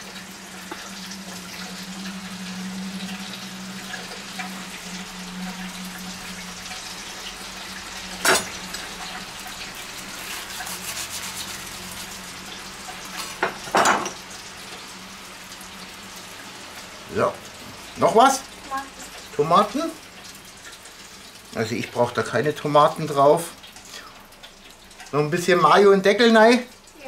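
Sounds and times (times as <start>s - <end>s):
steady low hum: 0.0s - 10.0s
fried chicken crackling: 0.0s - 27.0s.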